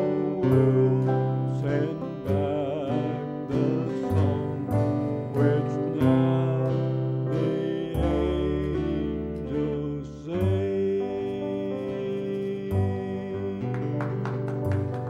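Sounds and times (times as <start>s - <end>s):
man singing: 0.0s - 14.7s
strummed acoustic guitar: 0.0s - 15.0s.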